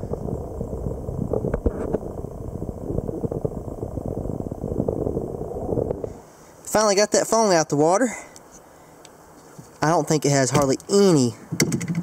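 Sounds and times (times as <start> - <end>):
muffled churning water underwater: 0.0 - 6.7
knocks: 11.5 - 12.0.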